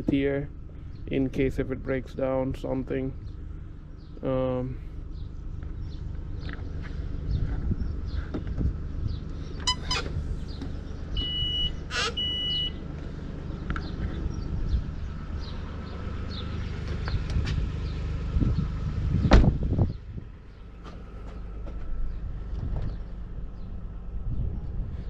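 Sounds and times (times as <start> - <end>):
low rumble: 0.0 - 25.0
short electronic beeps: 11.2 - 12.8
car door thump: 19.2 - 19.6.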